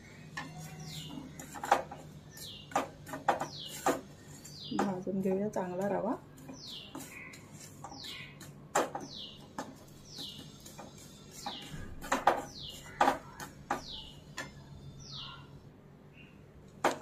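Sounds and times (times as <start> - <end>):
bird chirping: 0.3 - 16.5
metal spatula scraping a pan: 0.4 - 4.8, 5.7 - 14.2.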